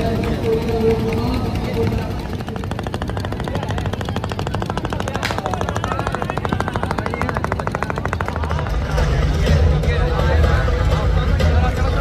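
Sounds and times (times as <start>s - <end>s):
motorboat engine puttering: 0.0s - 12.0s
sharp crack: 3.0s - 8.5s.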